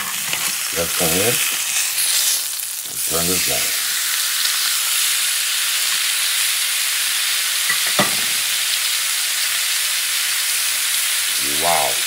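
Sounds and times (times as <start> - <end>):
steak sizzling on a grill pan: 0.0 - 12.0.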